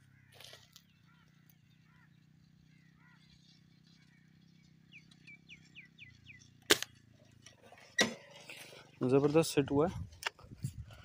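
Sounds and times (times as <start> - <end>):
small bird chirping: 0.0 - 7.4.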